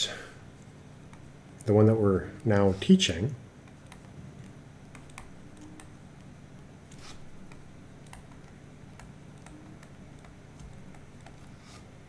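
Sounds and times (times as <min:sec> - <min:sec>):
low steady hum: 0:00.0 - 0:12.0
stylus tapping on tablet screen: 0:04.9 - 0:06.3.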